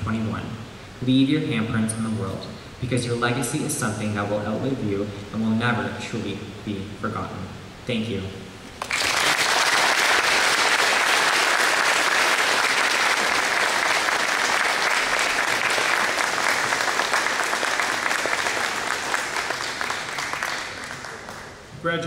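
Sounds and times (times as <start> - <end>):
audience applauding: 8.8 - 21.7.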